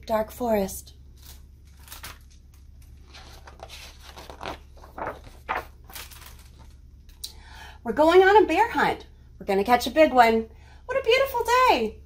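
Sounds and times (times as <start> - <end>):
book pages rustling and flapping: 1.2 - 6.8.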